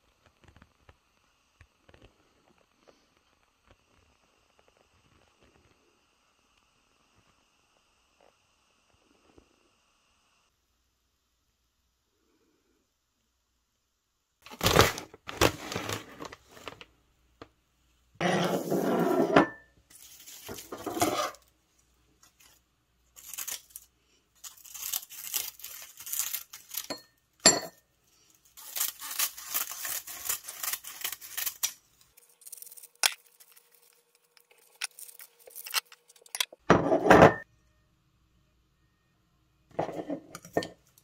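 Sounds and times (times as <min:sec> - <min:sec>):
plastic wrapping crinkling and tearing: 0:14.4 - 0:16.9, 0:19.9 - 0:21.4, 0:22.2 - 0:26.9, 0:28.4 - 0:36.4
dry seaweed sheets rustling: 0:19.9 - 0:21.4, 0:22.2 - 0:26.9
scissors crunching through sheets: 0:23.2 - 0:26.9, 0:28.6 - 0:36.2.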